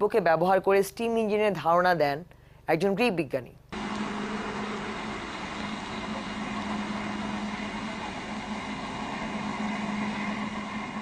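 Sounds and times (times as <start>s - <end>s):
distant steam train rumble: 3.8s - 11.0s
low hum: 3.8s - 11.0s.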